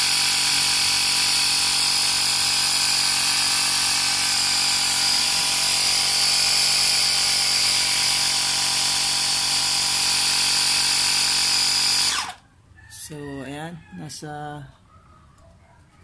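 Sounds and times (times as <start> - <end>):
air compressor running: 0.0 - 12.4.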